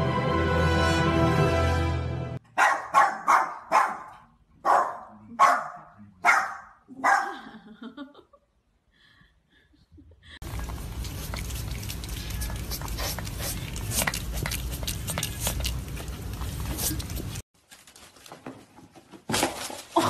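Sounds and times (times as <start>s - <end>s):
small dog barking: 2.5s - 7.4s.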